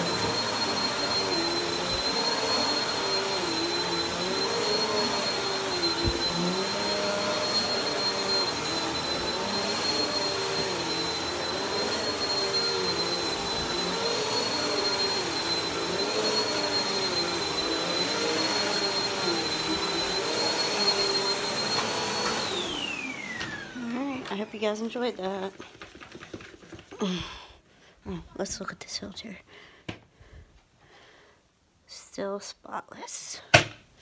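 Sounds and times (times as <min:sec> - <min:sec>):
vacuum cleaner motor whine: 0:00.0 - 0:25.3.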